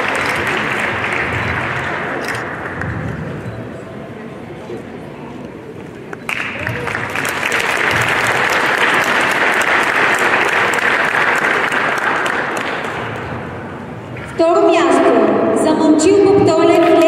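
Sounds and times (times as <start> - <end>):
audience applauding: 0.0 - 2.8, 6.2 - 13.4.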